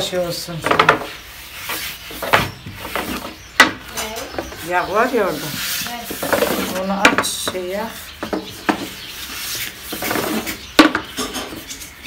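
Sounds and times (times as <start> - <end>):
kitchen tools knocking on surface: 6.1 - 7.6.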